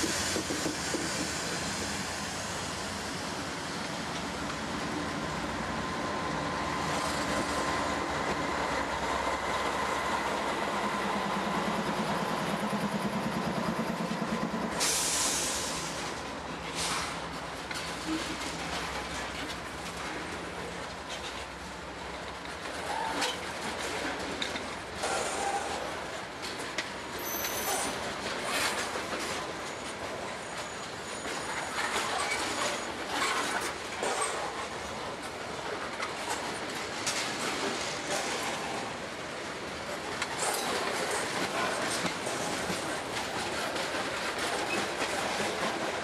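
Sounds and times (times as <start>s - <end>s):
train wheels clattering on rail: 0.0s - 46.0s
high wheel squeals: 27.2s - 28.0s.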